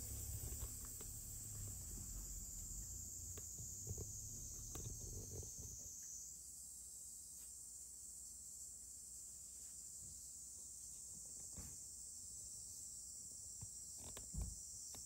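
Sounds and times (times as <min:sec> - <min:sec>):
low bumps: 0:00.0 - 0:05.9
insects chirring: 0:00.0 - 0:15.0.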